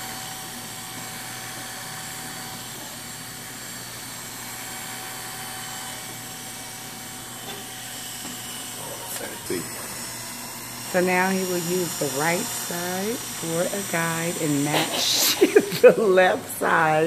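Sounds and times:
electric hair clippers humming: 0:00.0 - 0:17.0.

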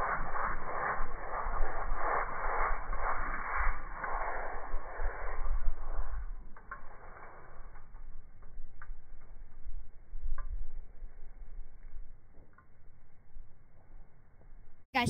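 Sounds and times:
spray paint can hissing: 0:00.0 - 0:07.7
wind rumbling on microphone: 0:00.0 - 0:13.6.

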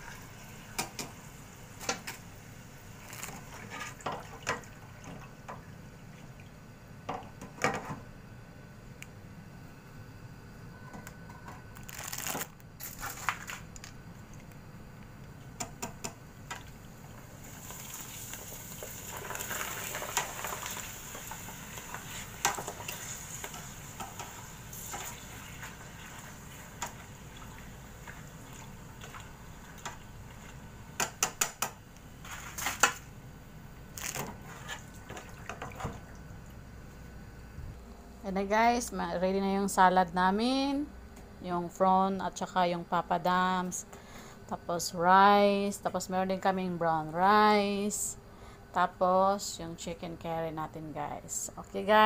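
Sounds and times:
papadums sizzling in hot oil: 0:16.9 - 0:30.9.

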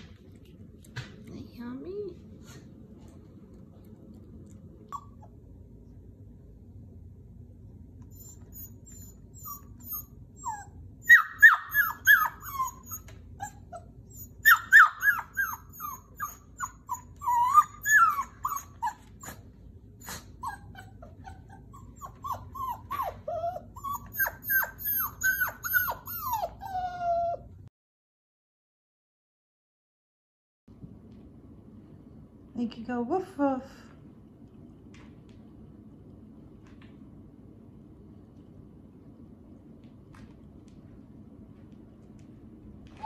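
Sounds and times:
puppy whimpering and crying: 0:04.8 - 0:05.5, 0:08.1 - 0:27.7.

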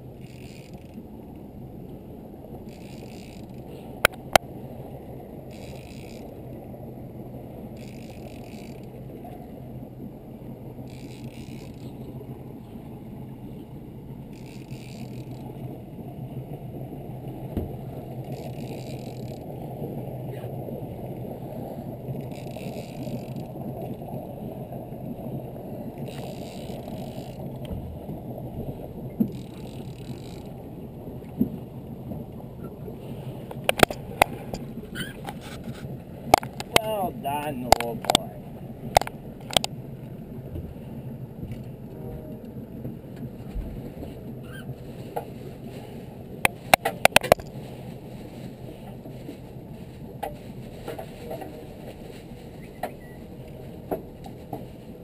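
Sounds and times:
boat motor humming: 0:00.0 - 0:55.0
fishing reel whirring: 0:00.2 - 0:01.0, 0:02.6 - 0:03.6, 0:05.5 - 0:06.4, 0:07.7 - 0:08.9, 0:10.8 - 0:12.0, 0:14.3 - 0:15.4, 0:18.2 - 0:19.4, 0:22.2 - 0:23.5, 0:26.1 - 0:27.4, 0:29.3 - 0:30.6.

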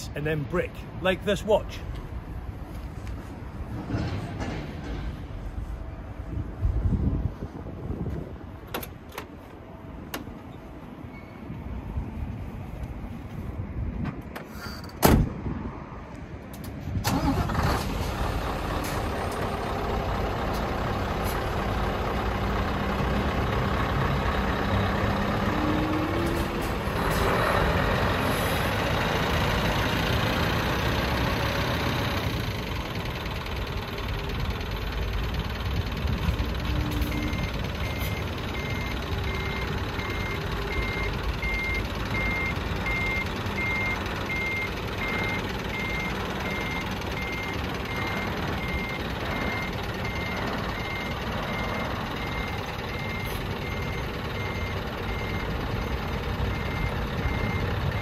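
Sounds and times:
truck door slamming: 0:14.8 - 0:15.4
diesel engine running: 0:17.0 - 0:58.0
reversing alarm beeping: 0:36.9 - 0:58.0.

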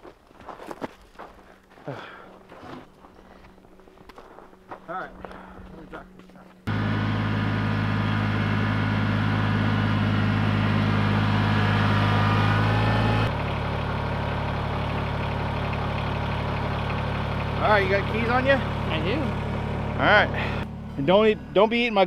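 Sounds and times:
tractor diesel engine: 0:06.6 - 0:22.0.

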